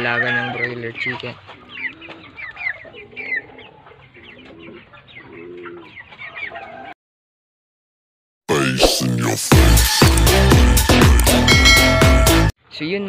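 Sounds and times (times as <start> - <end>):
chickens chirping: 0.0 - 7.0
chickens clucking: 0.0 - 7.0.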